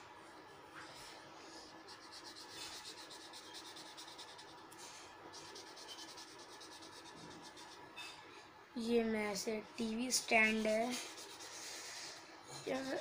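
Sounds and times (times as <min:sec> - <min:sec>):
marker scratching on paper: 0:01.8 - 0:07.9, 0:10.0 - 0:13.0.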